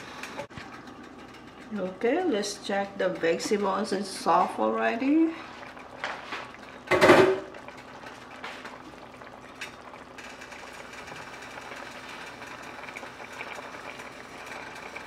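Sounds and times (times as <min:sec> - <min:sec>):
sauce simmering hiss: 0:07.5 - 0:15.0.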